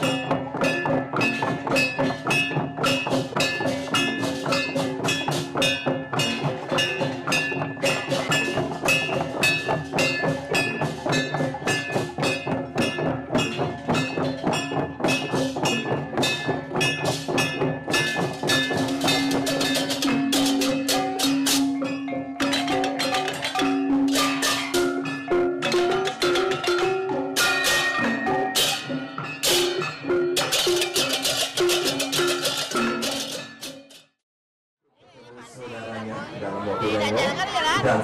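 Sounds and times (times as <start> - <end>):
metal percussion ringing: 0.0 - 34.1
wooden slit drums clattering: 17.9 - 33.7.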